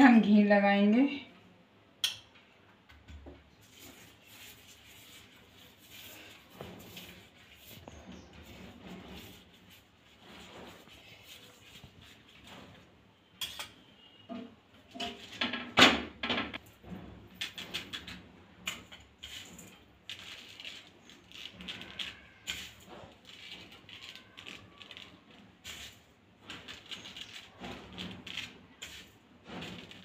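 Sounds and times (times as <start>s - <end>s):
steel utensils clicking and tapping: 2.0s - 2.5s, 13.4s - 15.5s.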